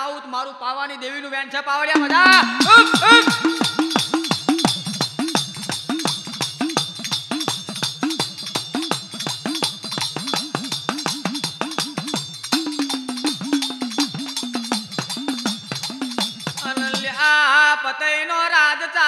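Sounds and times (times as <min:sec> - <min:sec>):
jingling percussion: 0:01.9 - 0:17.6
hand drum strokes: 0:02.0 - 0:17.2.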